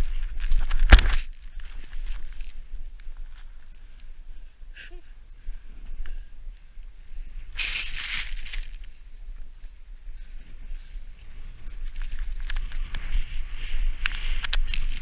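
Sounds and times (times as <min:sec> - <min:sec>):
snow spray hissing: 0:07.6 - 0:08.7.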